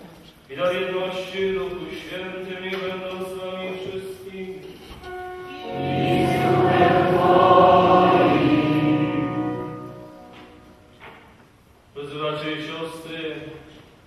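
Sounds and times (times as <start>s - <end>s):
priest chanting: 5.0s - 11.0s
many voices singing response: 5.5s - 10.8s.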